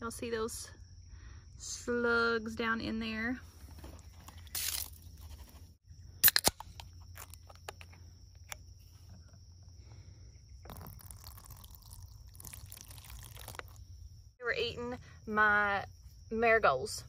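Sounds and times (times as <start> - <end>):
can pull tab cracking open: 6.2 - 7.9.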